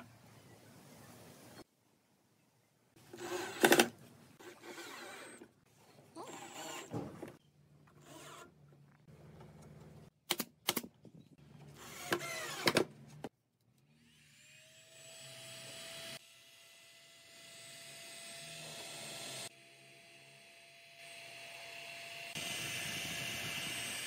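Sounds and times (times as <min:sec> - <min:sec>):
cordless drill driving screws: 0:03.1 - 0:05.5, 0:06.2 - 0:07.0, 0:11.8 - 0:12.8.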